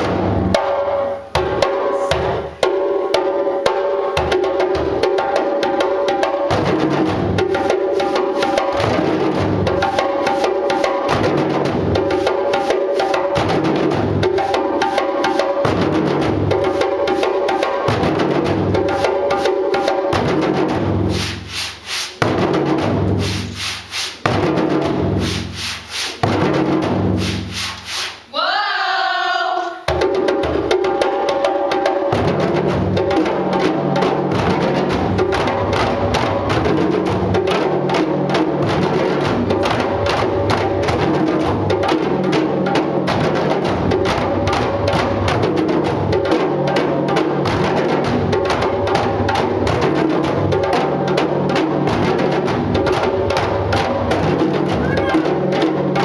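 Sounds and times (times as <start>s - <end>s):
djembe drums playing: 0.0s - 56.0s
person shouting a call: 28.3s - 29.8s, 54.8s - 55.3s.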